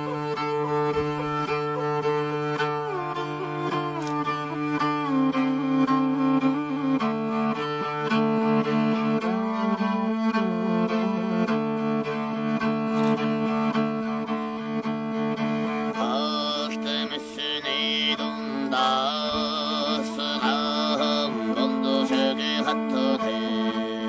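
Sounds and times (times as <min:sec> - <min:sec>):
bowed string instrument: 0:00.0 - 0:24.0
person singing with wavering tones: 0:15.9 - 0:24.0.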